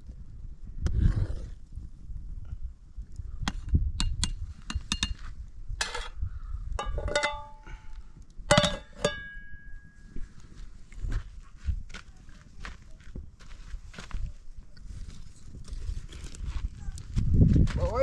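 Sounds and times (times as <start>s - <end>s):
metal cookware clattering: 6.8s - 7.7s, 8.5s - 9.6s
ringing metal clangs: 6.8s - 7.9s, 8.5s - 10.2s.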